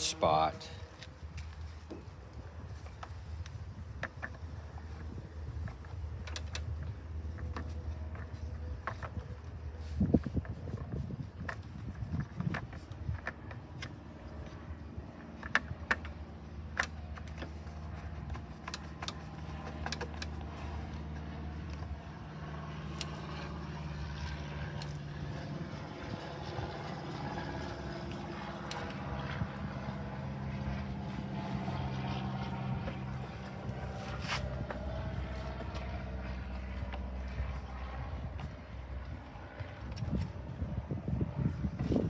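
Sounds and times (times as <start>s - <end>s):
engine hum: 0.0s - 42.0s.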